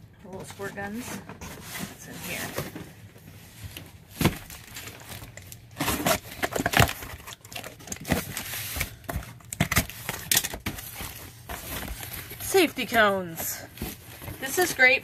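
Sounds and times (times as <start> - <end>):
cardboard tearing and rustling: 3.6 - 15.0.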